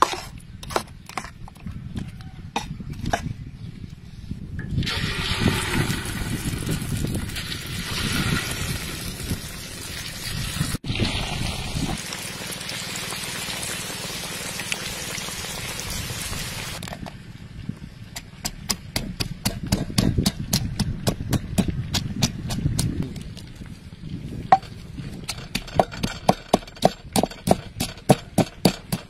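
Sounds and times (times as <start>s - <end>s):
fish frying in hot oil: 7.4s - 16.8s.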